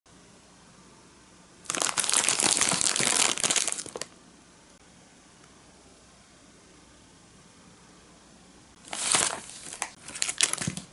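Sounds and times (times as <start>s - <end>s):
plastic bag crinkling: 1.6s - 4.1s, 8.8s - 10.9s.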